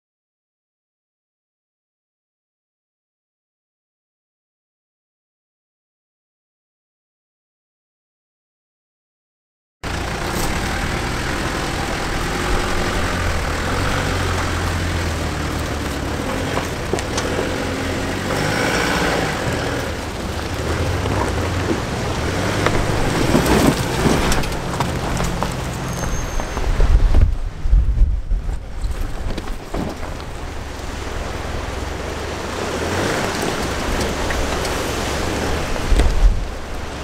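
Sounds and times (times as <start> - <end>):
vehicle engine running at low revs: 9.8 - 37.0
knocks and rattles: 9.9 - 27.4, 28.4 - 32.0
wind buffeting microphone: 11.8 - 37.0.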